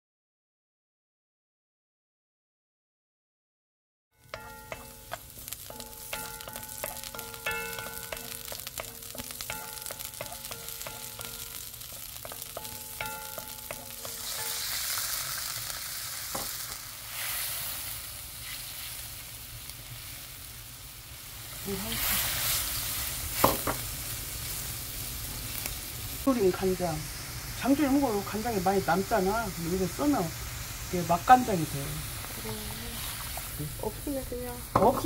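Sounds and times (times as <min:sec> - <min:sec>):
wooden spatula stirring in wok: 0:04.2 - 0:20.4, 0:21.4 - 0:24.4, 0:27.5 - 0:35.0
garlic sizzling in oil: 0:04.2 - 0:35.0
sauce hissing in hot pan: 0:04.2 - 0:35.0.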